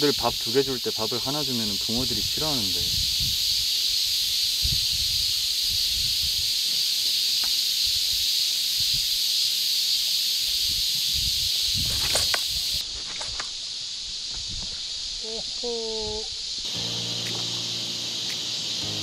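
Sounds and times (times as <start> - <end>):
cicada chorus hissing: 0.0 - 19.0
wind buffeting microphone: 2.2 - 3.6, 4.6 - 6.5, 10.6 - 12.8.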